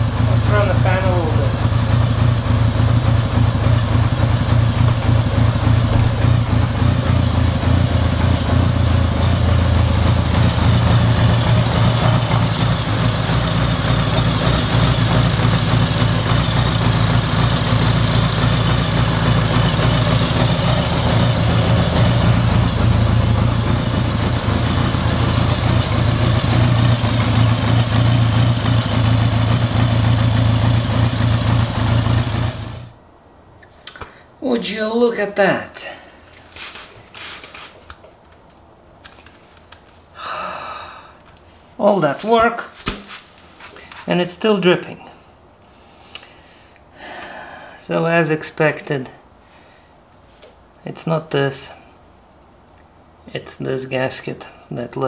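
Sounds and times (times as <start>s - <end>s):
motorcycle engine idling: 0.0s - 33.0s.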